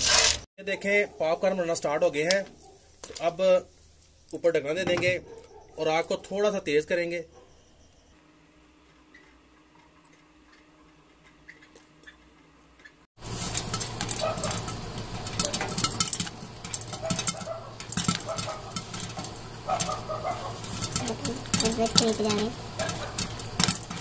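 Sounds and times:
popcorn popping: 8.8s - 24.0s
kernels clinking against lid: 13.2s - 24.0s.

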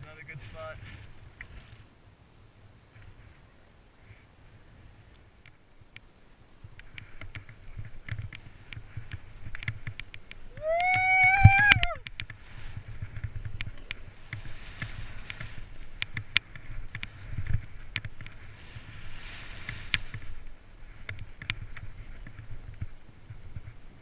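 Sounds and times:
wind rumble on microphone: 0.0s - 24.0s
person shouting: 10.6s - 12.0s.

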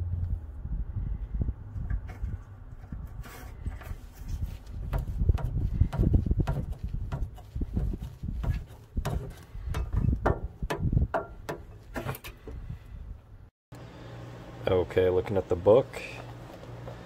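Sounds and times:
low rumble: 0.0s - 3.8s.

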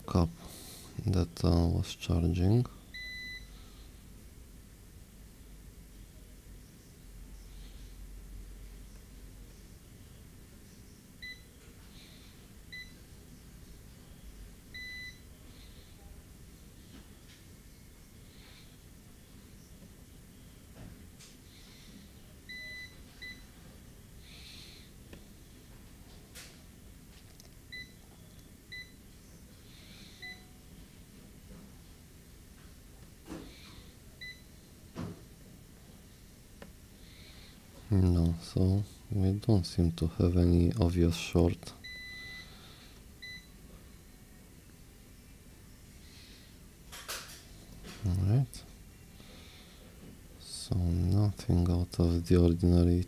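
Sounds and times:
multimeter beeping: 22.5s - 23.4s, 41.8s - 42.5s.

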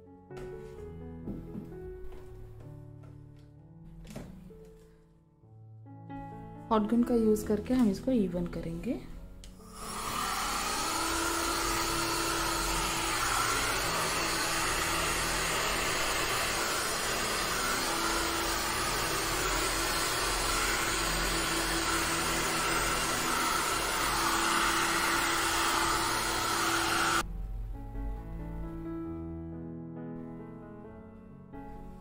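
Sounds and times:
heat gun blowing air: 9.6s - 27.2s.

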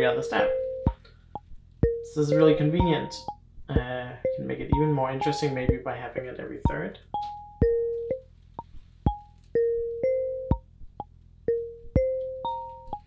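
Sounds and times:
marimba-like synth melody: 0.0s - 5.8s, 6.7s - 8.2s, 9.1s - 10.6s, 11.5s - 13.0s.

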